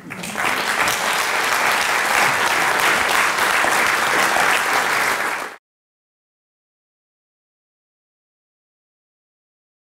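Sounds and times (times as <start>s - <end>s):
audience applause: 0.0s - 5.6s.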